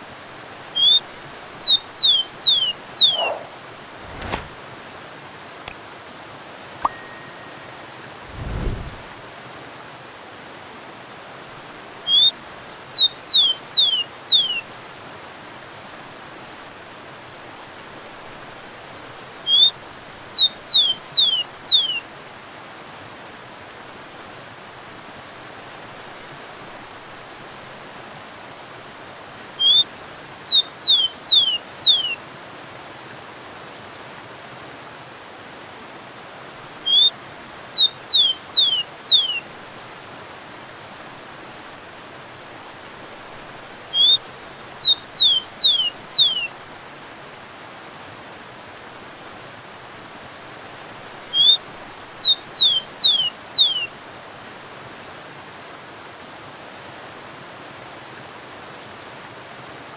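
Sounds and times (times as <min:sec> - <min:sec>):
sparrow singing whistles: 0:00.8 - 0:03.5, 0:12.1 - 0:14.6, 0:19.5 - 0:22.0, 0:29.6 - 0:32.2, 0:36.9 - 0:39.4, 0:44.0 - 0:46.5, 0:51.4 - 0:53.9
waterfall rushing: 0:06.9 - 0:09.4.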